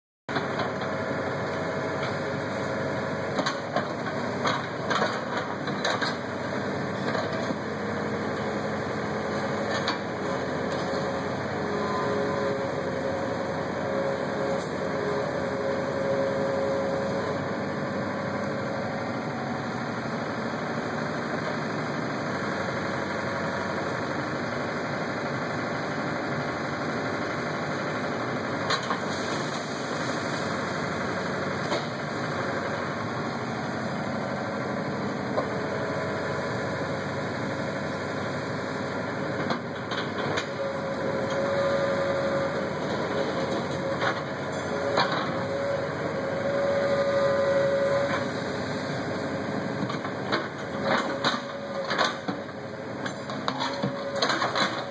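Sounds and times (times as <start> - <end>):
excavator diesel engine running: 0.3 - 54.9.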